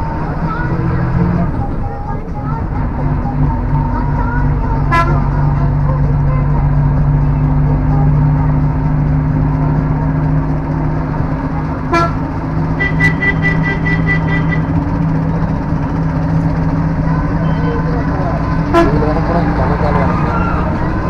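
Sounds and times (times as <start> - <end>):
vehicle engine humming: 0.0 - 21.0
horn toot: 11.9 - 12.2, 12.8 - 14.8, 18.6 - 19.6.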